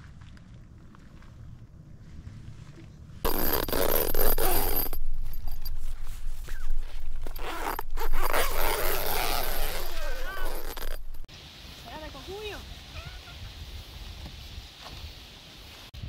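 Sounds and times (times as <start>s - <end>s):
rasping scraping noise: 3.2s - 11.3s
short high squeaks: 3.3s - 11.3s.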